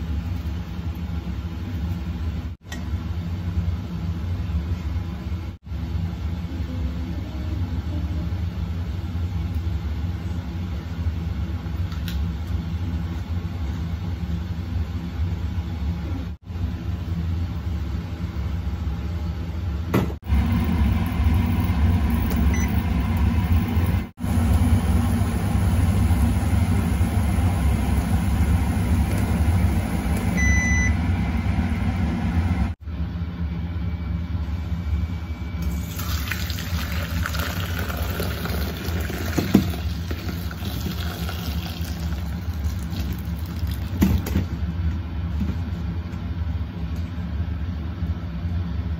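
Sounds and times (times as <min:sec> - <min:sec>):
low machine hum: 0:00.0 - 0:48.9
short electronic beep: 0:30.4 - 0:31.0.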